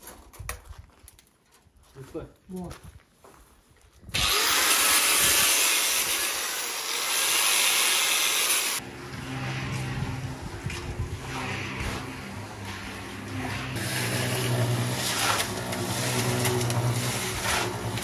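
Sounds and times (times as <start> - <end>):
angle grinder cutting steel: 4.2 - 18.0
low machine hum: 8.8 - 18.0.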